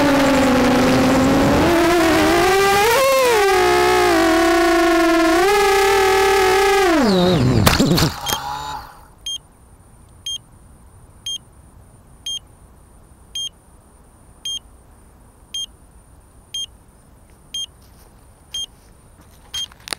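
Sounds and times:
drone motors whining down: 0:00.0 - 0:09.2.

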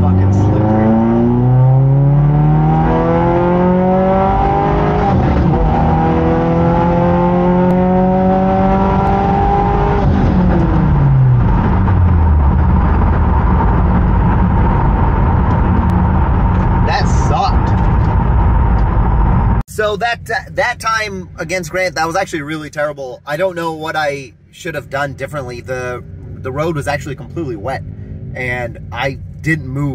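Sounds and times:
car engine accelerating: 0:00.0 - 0:19.6.

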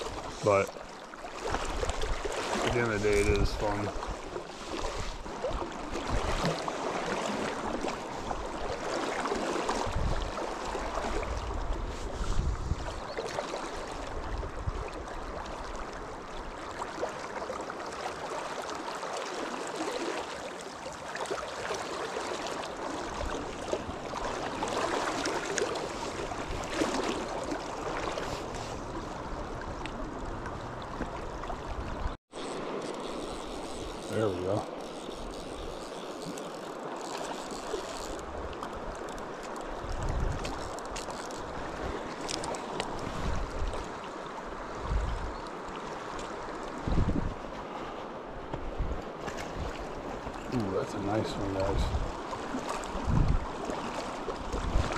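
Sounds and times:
river water rushing: 0:00.0 - 0:11.6, 0:14.9 - 0:31.6, 0:49.0 - 0:54.9.

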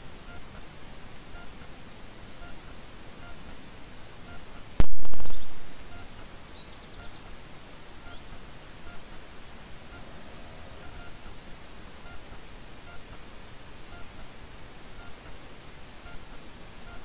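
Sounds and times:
small birds chirping: 0:00.0 - 0:17.0
sharp click and burst: 0:04.8 - 0:06.1.

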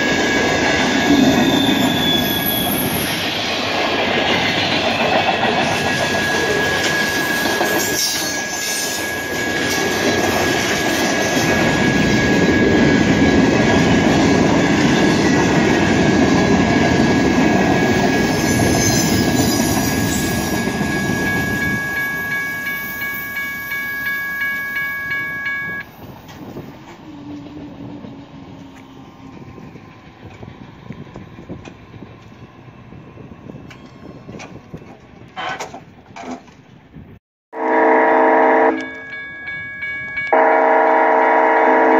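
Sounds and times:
crossing warning bell ringing: 0:00.0 - 0:03.3, 0:04.3 - 0:27.0, 0:33.6 - 0:35.1, 0:37.6 - 0:41.9
freight train wheels rumbling: 0:00.0 - 0:37.2.

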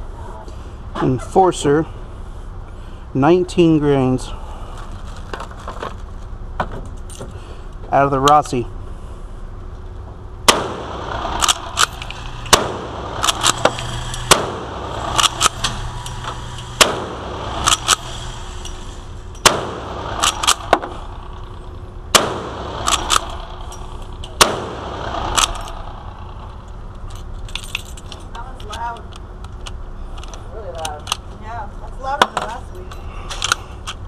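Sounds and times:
loud gunshots echoing indoors: 0:16.8 - 0:17.7, 0:19.4 - 0:20.8, 0:22.1 - 0:23.4, 0:24.4 - 0:25.5.

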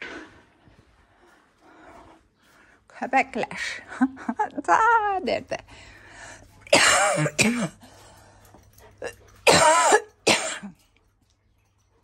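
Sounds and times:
person coughing: 0:06.7 - 0:07.9, 0:09.4 - 0:10.8.

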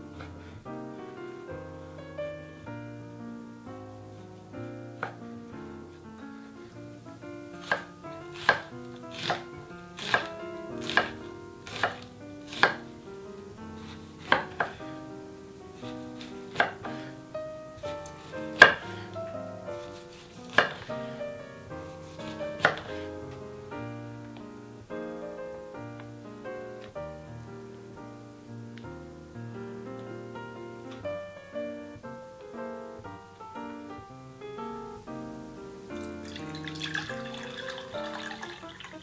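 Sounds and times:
soft background music: 0:00.0 - 0:39.0
knife knocking on cutting board: 0:22.2 - 0:23.0.

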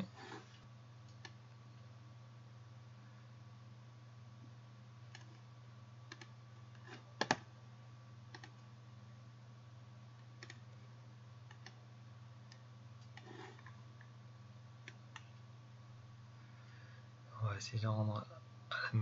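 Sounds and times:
steady low hum: 0:00.0 - 0:19.0
computer mouse clicks: 0:01.1 - 0:01.4, 0:05.1 - 0:05.4, 0:06.1 - 0:07.4, 0:08.3 - 0:08.7, 0:10.4 - 0:10.6, 0:11.5 - 0:11.8, 0:14.8 - 0:15.4.

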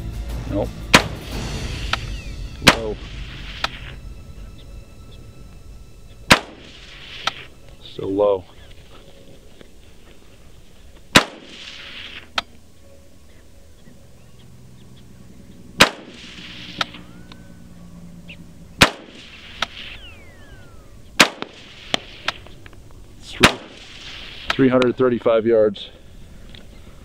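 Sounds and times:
rifle shots with echo: 0:00.9 - 0:01.3, 0:02.6 - 0:03.2, 0:06.3 - 0:07.4, 0:11.1 - 0:12.2, 0:15.8 - 0:17.1, 0:18.8 - 0:22.6, 0:23.2 - 0:24.8
faint sharp crack: 0:21.2 - 0:24.9.

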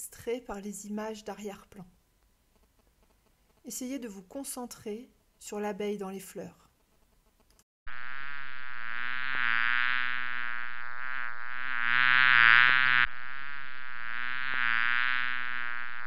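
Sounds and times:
bee buzzing: 0:09.1 - 0:16.0.

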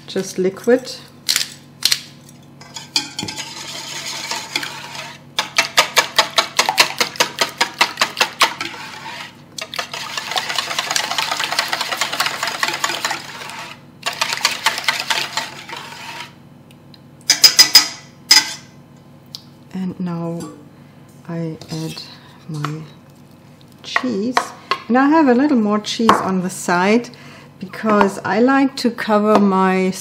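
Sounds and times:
pepper mill grinding: 0:02.6 - 0:16.3
whisk beating liquid in metal bowl: 0:02.8 - 0:16.4.

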